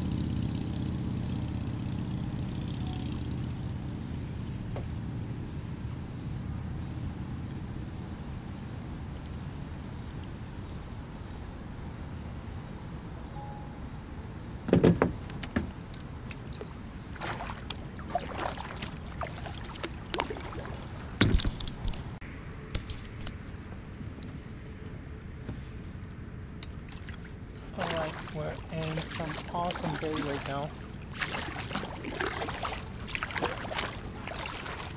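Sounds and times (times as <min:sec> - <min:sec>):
paddle splashes and knocks: 0:14.7 - 0:22.1, 0:26.8 - 0:34.9
water rushing against kayak hull: 0:16.2 - 0:22.2, 0:26.8 - 0:34.9.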